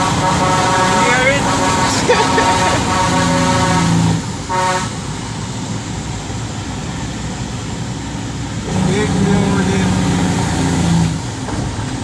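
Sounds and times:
short horn toot: 0.0 - 4.9
engine and road noise: 0.0 - 12.0.

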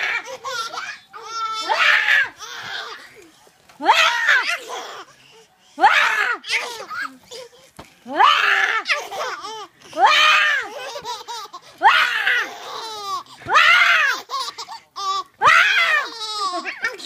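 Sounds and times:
infant laughing: 0.0 - 3.2, 4.2 - 5.1, 8.6 - 13.4, 14.0 - 15.3.

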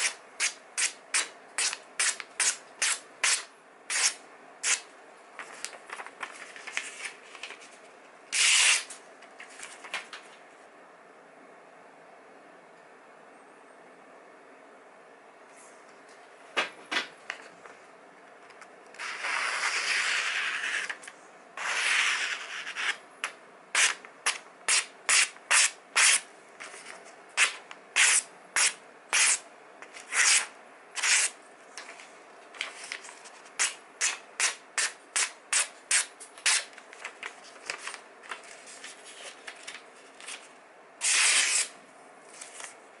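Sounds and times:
knife slicing paper: 30.0 - 31.4, 41.0 - 42.8.

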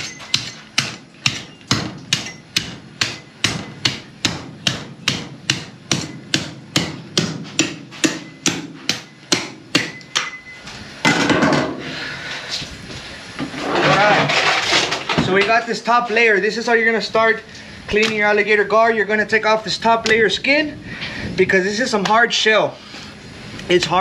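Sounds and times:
cleaver chopping through scales: 0.0 - 10.4
rough scraping: 13.4 - 16.3.

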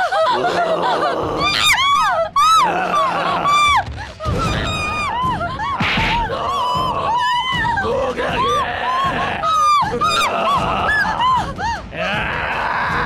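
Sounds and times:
background music: 0.0 - 13.0
people screaming: 0.0 - 13.0.

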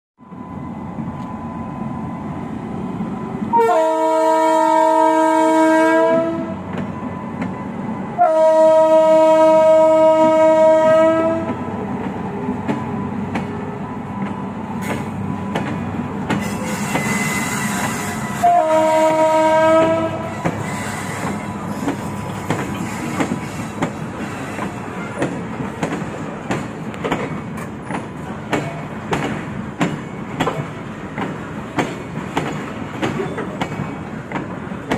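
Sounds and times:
locomotive horn blasts: 3.5 - 6.6, 8.2 - 11.6, 16.6 - 21.3
wheels clickety-clack on rail joints: 6.0 - 7.7, 9.0 - 34.9.

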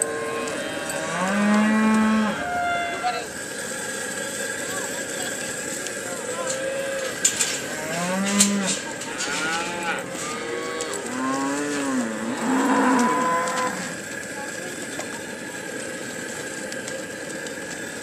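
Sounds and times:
cattle mooing: 0.0 - 3.3, 6.2 - 14.0.

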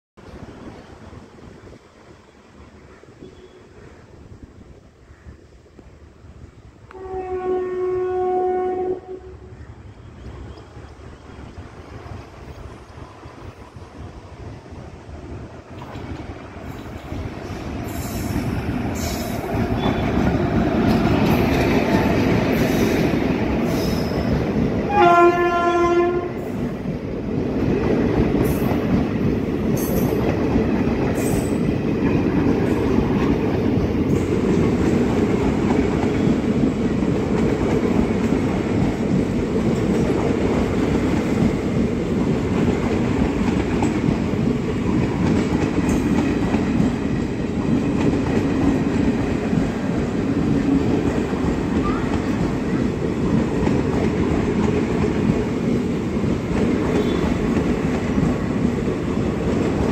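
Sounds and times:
train wheels rumbling on rails: 0.2 - 59.9
train horn blast: 6.9 - 9.6, 24.9 - 26.6, 56.9 - 57.4.

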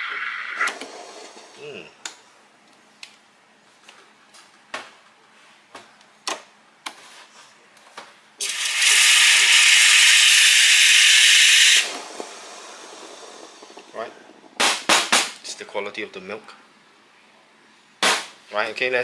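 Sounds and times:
steam wand hissing: 8.4 - 14.0.

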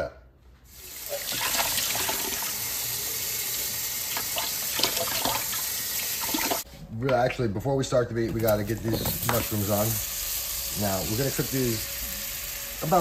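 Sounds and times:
faucet running into sink: 0.8 - 6.6
water splashing in steel sink: 1.1 - 2.7, 4.0 - 6.6.

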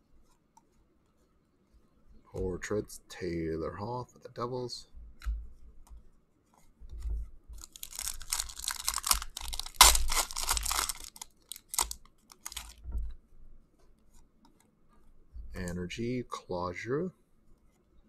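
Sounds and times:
soft low thumps: 6.8 - 7.7, 12.8 - 13.6, 15.2 - 15.7
foil tearing: 7.6 - 12.8
foil wrapper crinkling: 7.6 - 12.8.

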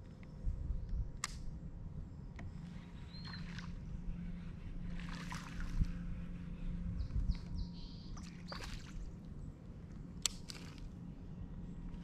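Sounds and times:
small birds chirping: 2.5 - 3.9, 6.4 - 9.5
fish splashing in water: 5.0 - 5.8, 8.2 - 9.2.

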